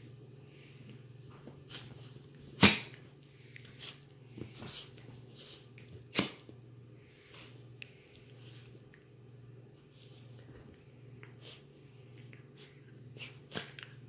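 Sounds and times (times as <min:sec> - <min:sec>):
dogs play-fighting: 0:07.3 - 0:14.0.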